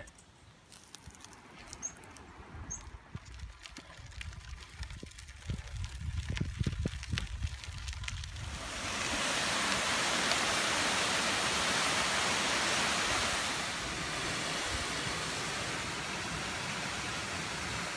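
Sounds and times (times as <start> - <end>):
waterfall rushing: 8.4 - 17.9.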